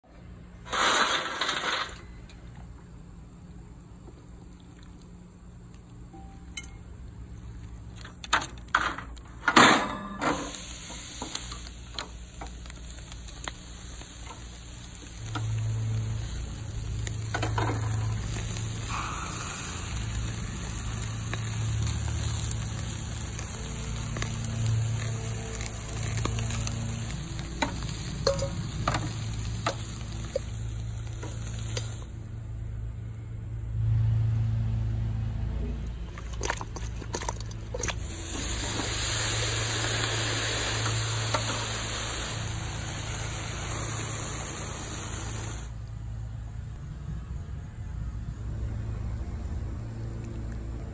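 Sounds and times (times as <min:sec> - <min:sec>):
sauce dripping on hot grate: 0:03.6 - 0:09.3, 0:10.4 - 0:32.2, 0:36.2 - 0:45.7
chicken wings sizzling on a grill: 0:07.0 - 0:33.0, 0:37.4 - 0:45.8.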